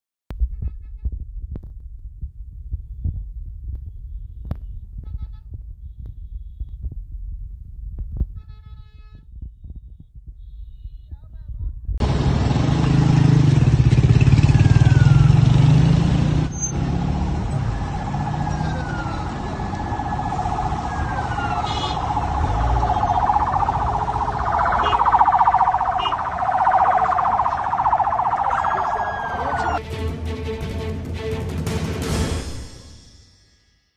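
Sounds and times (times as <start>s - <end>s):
loud street noise: 12.0s - 29.8s
emergency sirens wailing: 14.4s - 15.6s, 17.2s - 29.8s
low rumble: 19.7s - 29.0s.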